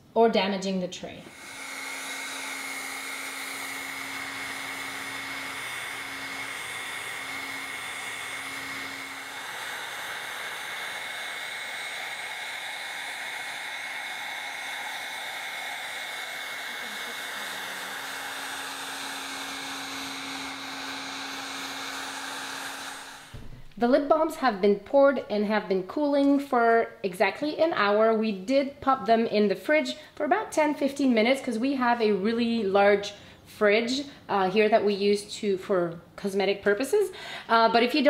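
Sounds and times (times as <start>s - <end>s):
heat gun blowing with whine: 1.2s - 25.2s.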